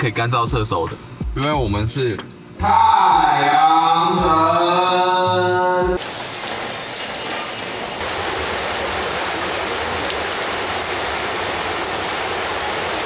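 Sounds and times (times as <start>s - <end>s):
steady rain falling: 6.0s - 13.0s.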